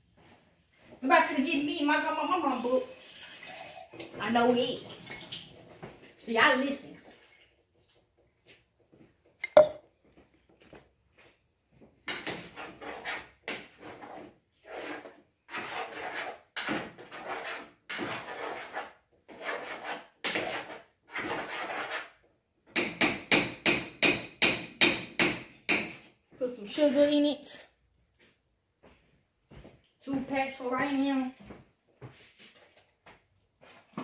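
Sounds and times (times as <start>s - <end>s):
spoon scraping in a pot: 12.5s - 19.9s.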